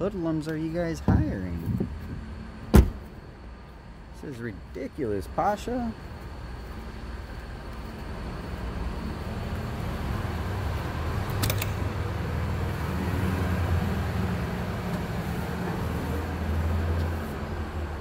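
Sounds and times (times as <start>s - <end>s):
low mechanical rumble: 0.0s - 18.0s
sharp click: 11.3s - 11.8s.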